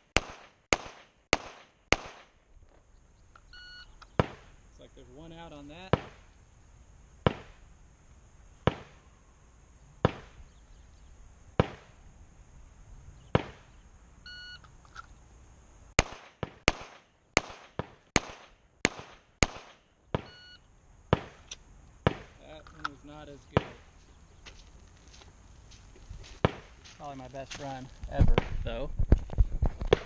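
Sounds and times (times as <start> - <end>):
pistol shots: 0.2 - 2.4, 5.8 - 6.2, 8.6 - 9.0, 10.0 - 10.4, 11.6 - 11.9, 13.3 - 13.7, 16.0 - 20.4, 21.1 - 21.4.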